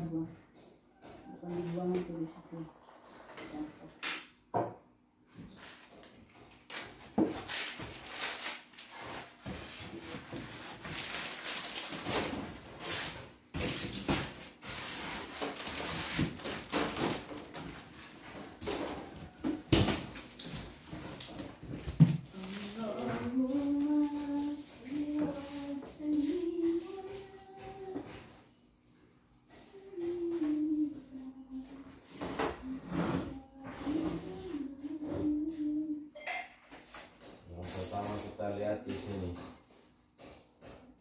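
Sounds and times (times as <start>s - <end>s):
plastic wrapping rustling: 5.6s - 27.5s.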